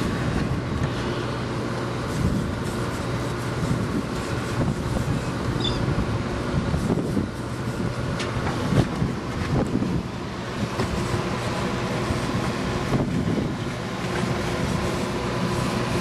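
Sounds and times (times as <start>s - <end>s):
boat engine drone: 0.0s - 16.0s
wind on microphone: 3.6s - 10.8s, 12.2s - 13.7s.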